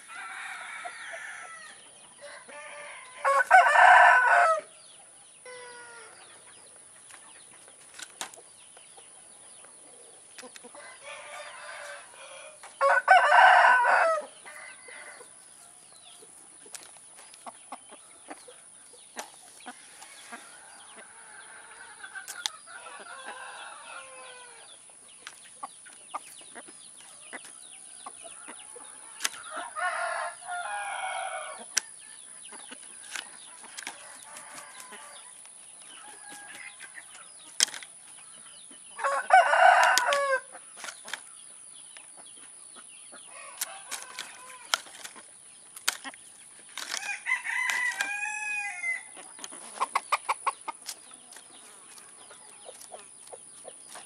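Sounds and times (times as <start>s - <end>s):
rooster crowing: 0.0s - 4.7s, 10.8s - 15.3s, 22.7s - 24.7s, 29.6s - 31.6s, 39.0s - 40.5s, 43.3s - 44.7s, 47.0s - 49.1s
chicken clucking: 14.3s - 41.3s, 42.0s - 54.0s.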